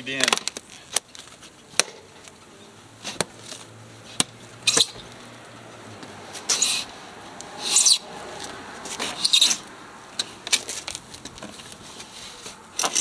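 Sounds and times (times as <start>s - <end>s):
sheet metal scraping: 8.9s - 10.9s.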